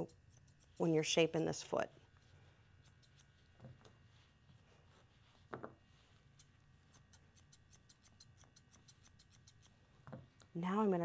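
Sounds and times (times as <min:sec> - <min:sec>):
grooming shears snipping: 0:02.1 - 0:04.0, 0:06.2 - 0:09.8.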